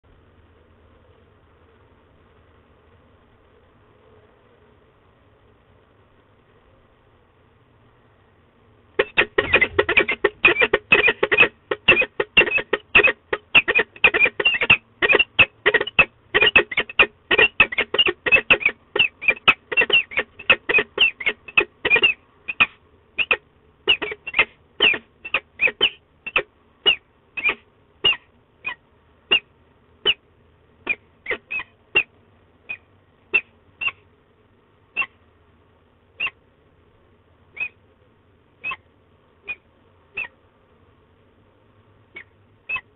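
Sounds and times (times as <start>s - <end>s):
falcon harsh calls: 9.0s - 30.2s, 30.8s - 32.1s, 32.7s - 34.0s, 35.0s - 35.2s, 36.2s - 36.4s, 37.6s - 37.8s, 38.6s - 39.6s, 40.2s - 40.4s, 42.2s - 42.9s.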